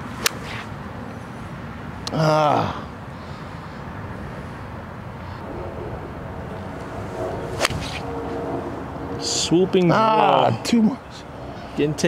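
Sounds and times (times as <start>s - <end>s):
golf club striking ball: 7.6s - 8.1s.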